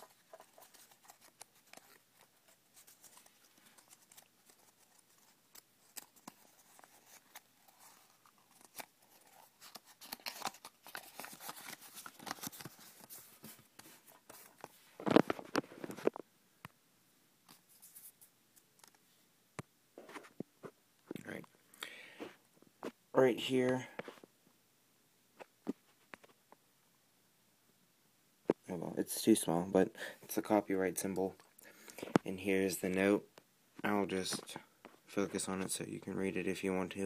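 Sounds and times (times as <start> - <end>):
paper crinkling and rustling: 0.0 - 16.2.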